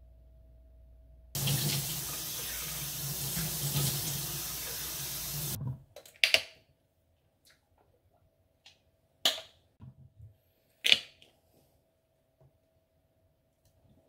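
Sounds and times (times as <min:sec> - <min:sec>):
tap running and splashing: 0:01.4 - 0:05.6.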